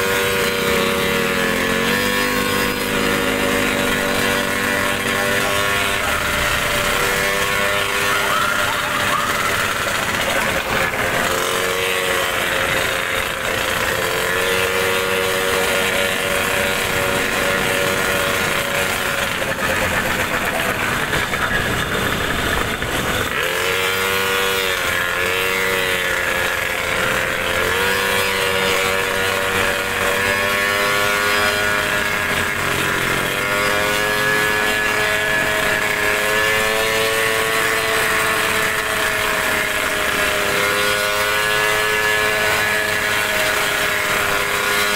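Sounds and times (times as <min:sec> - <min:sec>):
wet road noise: 0:00.0 - 0:11.6, 0:15.0 - 0:23.5
scooter engine running: 0:00.0 - 0:44.9.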